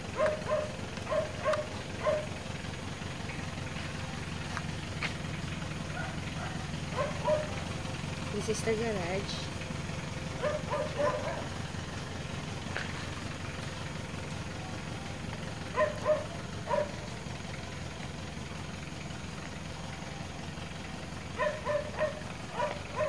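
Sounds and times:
dog barking: 0.2 - 2.4, 5.9 - 7.6, 10.4 - 11.6, 15.7 - 17.1, 21.4 - 23.0.

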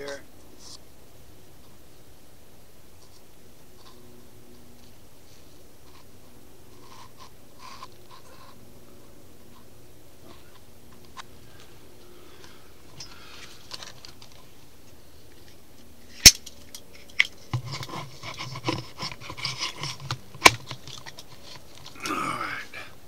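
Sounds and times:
camera handling rustling and knocks: 16.3 - 22.0.

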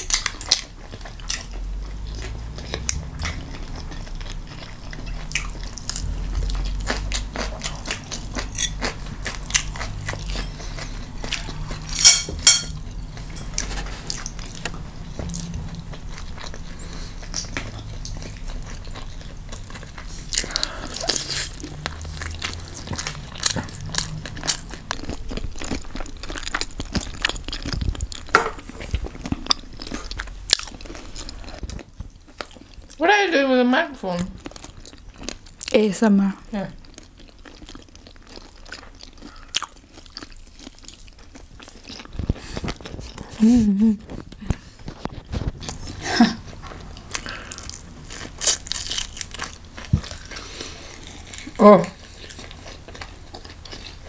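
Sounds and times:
person biting and crunching food: 46.9 - 54.0.

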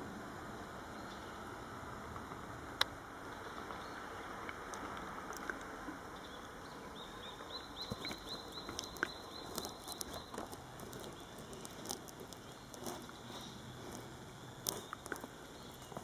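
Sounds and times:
bird chirping: 0.9 - 1.4, 3.3 - 4.3, 6.1 - 16.0.

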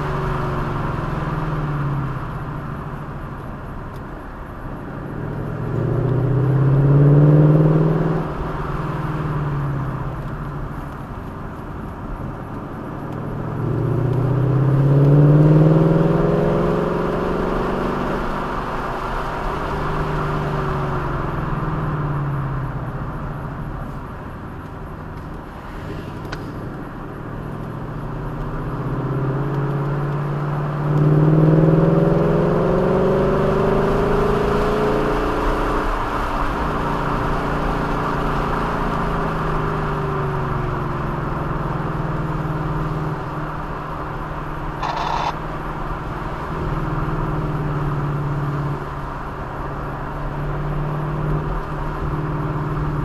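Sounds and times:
car engine accelerating: 0.0 - 53.0
road and wind noise: 0.0 - 53.0.

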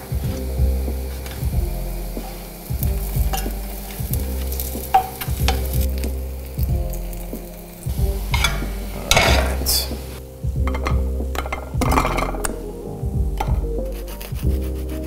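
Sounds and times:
bread sizzling in oil: 0.0 - 12.4.

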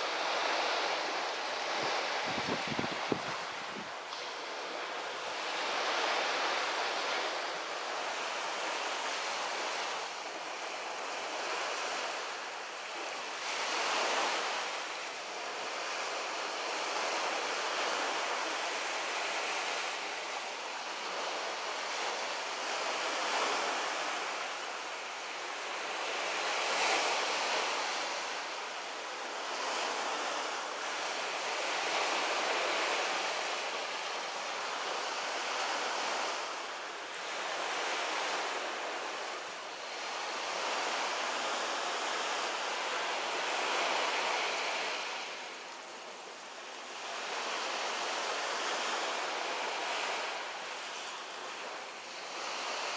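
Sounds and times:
small waves washing onto shore: 0.0 - 52.9.

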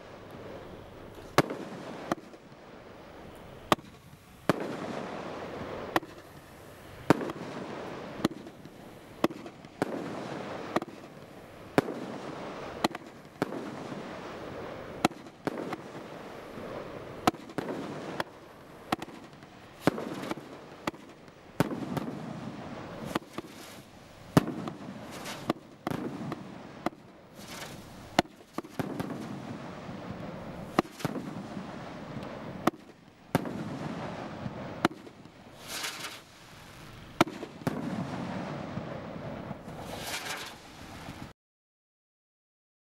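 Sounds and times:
firework reports: 0.0 - 41.3
firework effect rushing: 21.9 - 26.5, 27.4 - 32.7, 33.4 - 41.3.

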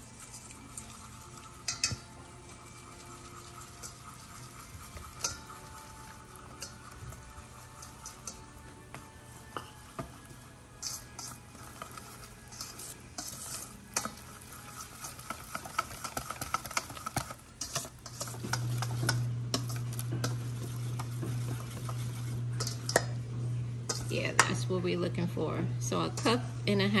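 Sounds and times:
utensil scraping and clinking bowl: 0.0 - 27.0
low hum: 18.2 - 27.0.

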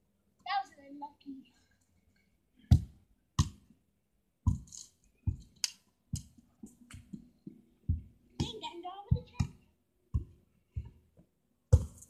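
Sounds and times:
sharp knocks and thumps: 2.7 - 3.8, 4.4 - 12.0.

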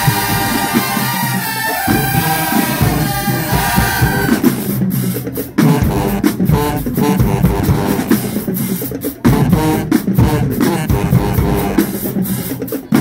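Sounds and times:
marching band playing: 0.0 - 13.0.

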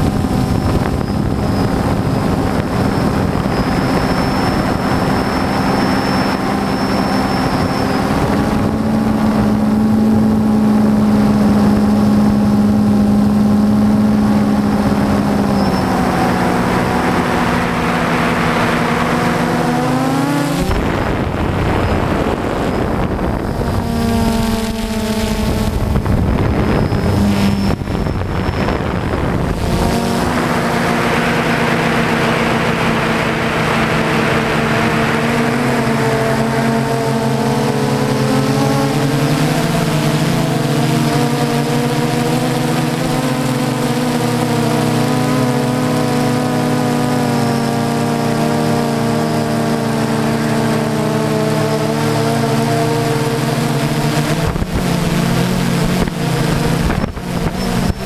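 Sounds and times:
drone motors humming: 0.0 - 58.0.

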